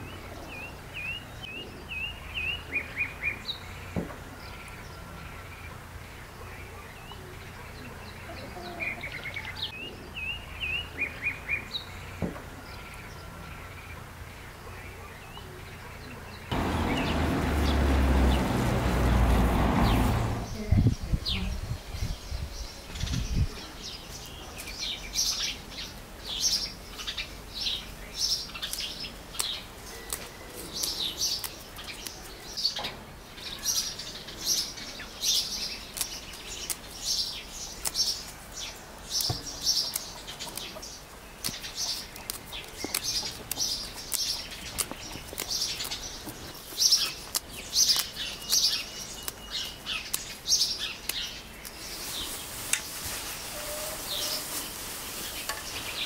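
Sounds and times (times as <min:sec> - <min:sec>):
songbirds chirping: 0:00.0 - 0:56.0
steady hiss: 0:51.6 - 0:56.0.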